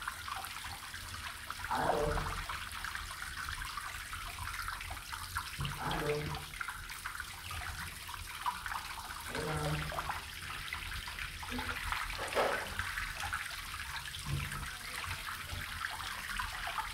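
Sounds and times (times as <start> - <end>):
water lapping in bathtub: 0.0 - 16.9.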